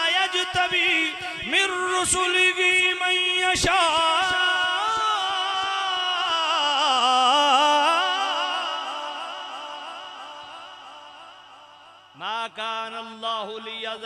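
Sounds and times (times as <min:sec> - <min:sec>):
man reciting melodically: 0:00.0 - 0:14.0.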